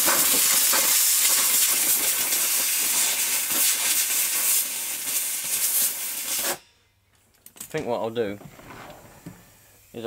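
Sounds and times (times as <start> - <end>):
air blow gun hissing: 0.0 - 6.7, 9.4 - 10.0.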